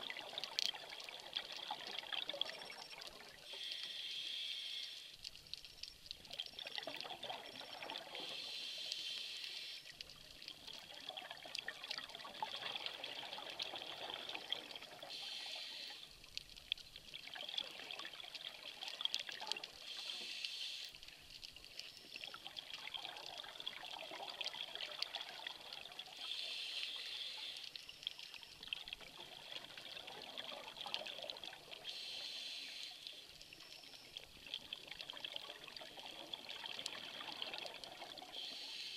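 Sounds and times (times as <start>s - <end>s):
faint steady crackle: 0.0s - 38.9s
scuba regulator inhale hiss: 3.5s - 5.2s, 8.2s - 9.9s, 15.1s - 16.1s, 19.8s - 21.0s, 26.2s - 27.8s, 31.8s - 33.2s, 38.3s - 38.9s
exhaled bubbles gushing: 10.6s - 15.1s, 22.3s - 26.2s, 28.6s - 31.8s, 34.4s - 38.3s.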